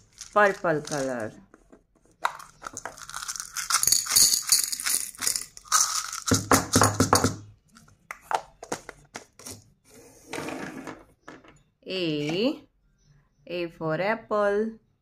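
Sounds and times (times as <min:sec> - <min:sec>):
hard candies rattling in plastic: 0:00.0 - 0:01.4, 0:02.2 - 0:07.4.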